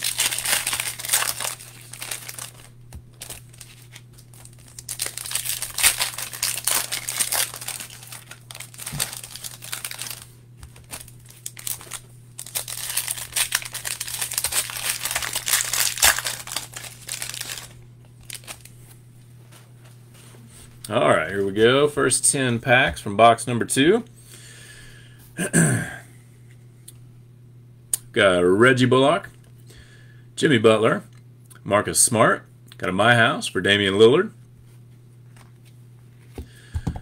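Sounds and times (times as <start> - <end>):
foil wrappers crinkling and tearing: 0.0 - 18.9.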